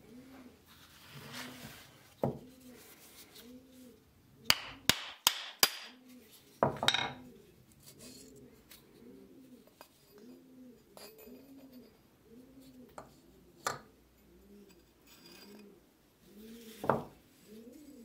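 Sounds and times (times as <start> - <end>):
pigeon cooing: 0.0 - 4.9, 5.9 - 18.0.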